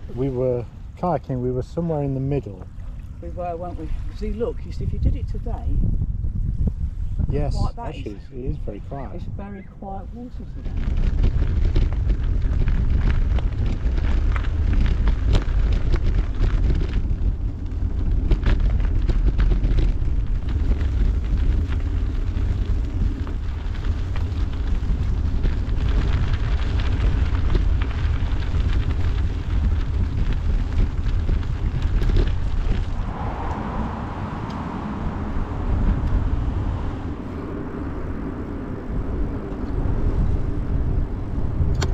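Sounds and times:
wind buffeting microphone: 0.0 - 41.9
tyres rolling over gravel: 10.6 - 41.5
stones crunching and clicking: 10.8 - 33.0.

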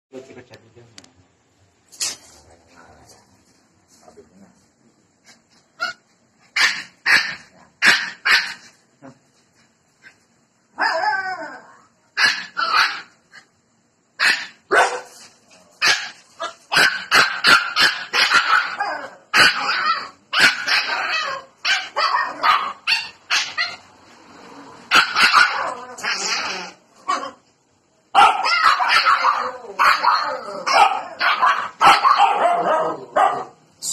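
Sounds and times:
dogs barking: 5.8 - 8.7, 12.2 - 13.2, 14.2 - 15.2, 15.8 - 23.9, 24.9 - 27.4, 28.1 - 33.6
dog howling: 10.8 - 11.9, 28.4 - 31.7.

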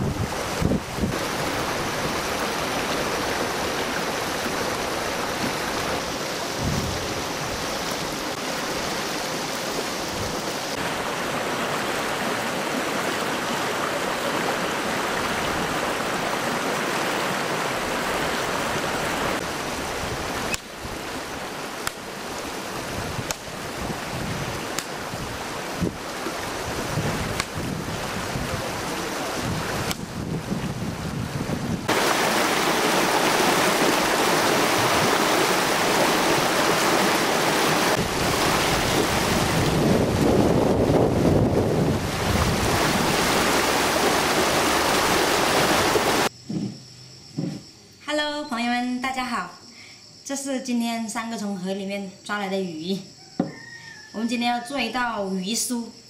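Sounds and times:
river rushing over rocks: 0.0 - 29.9, 31.8 - 46.3.

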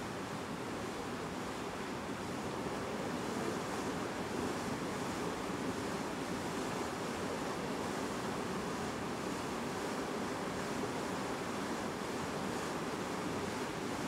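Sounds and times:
wind: 0.0 - 14.0.

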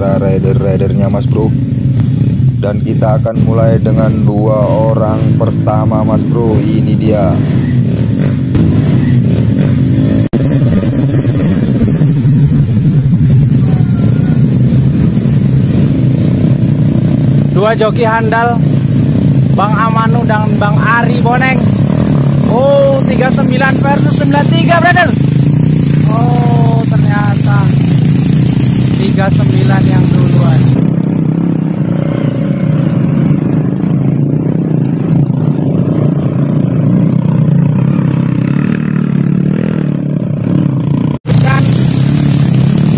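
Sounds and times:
motorcycle engines revving: 0.0 - 42.9.

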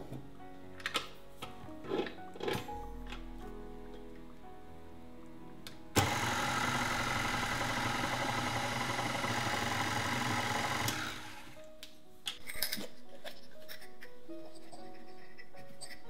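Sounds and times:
beater mixing batter in glass bowl: 6.0 - 11.6
stand mixer motor running: 6.0 - 11.6.

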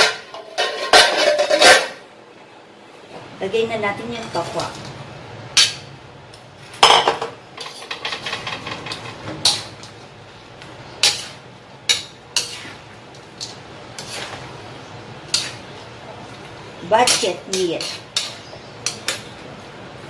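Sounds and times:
metal spatula clanking on wok: 6.8 - 9.9, 11.0 - 14.2, 17.0 - 19.3.

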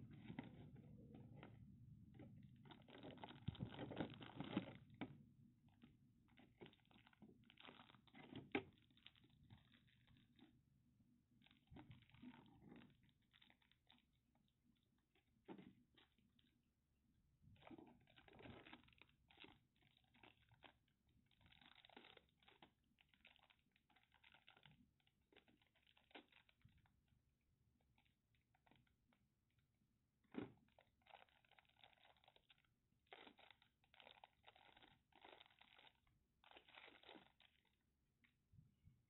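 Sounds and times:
plastic bags crinkling: 2.6 - 5.0, 6.4 - 10.3, 31.0 - 37.7.

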